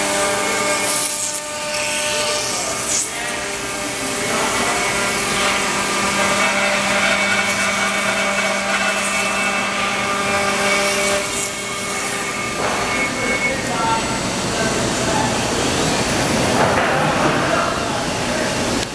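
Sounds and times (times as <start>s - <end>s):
router bit cutting wood: 0.0s - 15.0s
router spindle whine: 0.0s - 16.3s.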